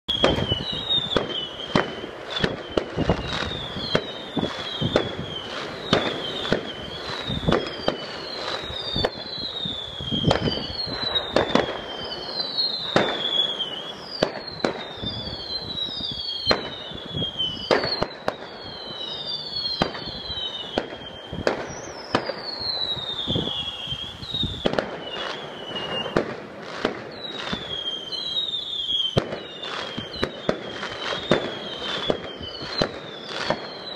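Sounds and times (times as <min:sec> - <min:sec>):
fireworks bangs: 0:00.1 - 0:33.9
whistling fireworks: 0:00.1 - 0:33.9.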